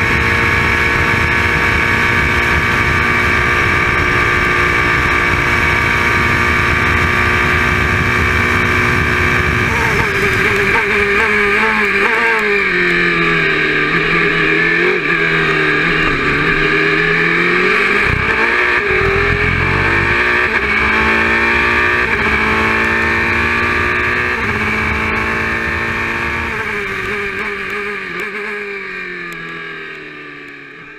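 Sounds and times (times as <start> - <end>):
race car engine shifting gears: 6.5 - 28.4.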